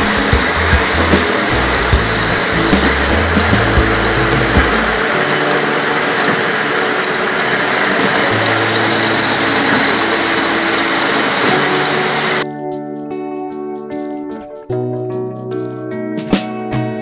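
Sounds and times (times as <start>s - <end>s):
deeper hum: 0.0s - 12.4s
low machine hum: 0.0s - 12.4s
machine hiss: 0.0s - 12.4s.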